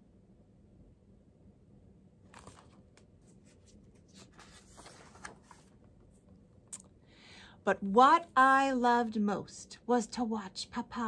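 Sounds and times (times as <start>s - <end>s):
paper rustling and crinkling: 2.3s - 5.9s.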